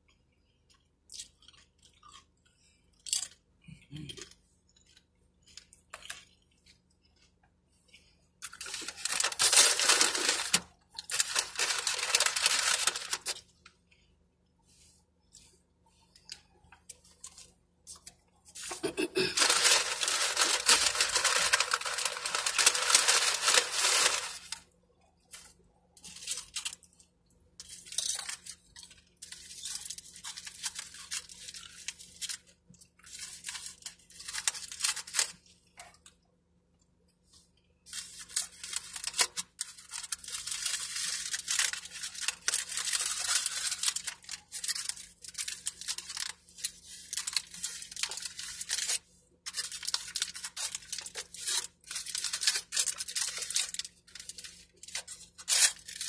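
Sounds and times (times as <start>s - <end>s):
chips crunched and chewed: 0.1s - 7.3s, 8.0s - 14.1s, 16.2s - 36.2s, 37.9s - 56.0s
foil wrapper crinkling: 8.4s - 13.6s, 17.0s - 24.7s, 25.3s - 27.0s, 27.6s - 35.5s, 37.9s - 56.0s.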